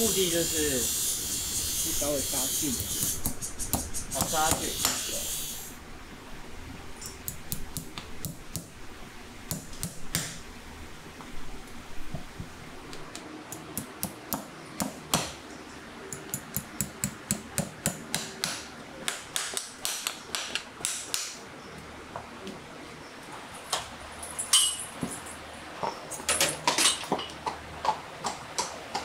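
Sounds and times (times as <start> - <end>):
hammer tapping horseshoe nails: 2.8 - 5.1, 7.2 - 8.7, 9.5 - 10.4, 16.1 - 21.4.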